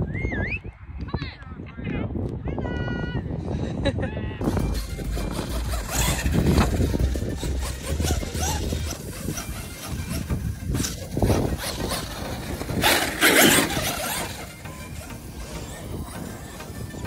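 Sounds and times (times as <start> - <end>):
electric toy trucks on grass: 4.4 - 17.0.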